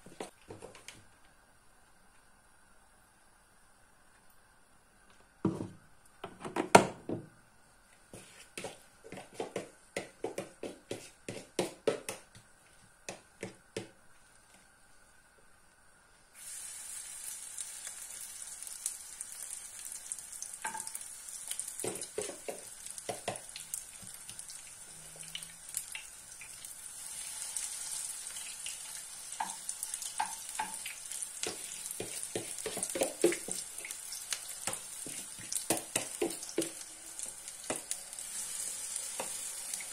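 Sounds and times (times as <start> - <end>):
oil sizzling: 15.7 - 39.9
spoon knocking on pan: 20.6 - 21.0, 21.8 - 23.5, 29.4 - 33.7, 34.6 - 36.8, 37.6 - 38.0.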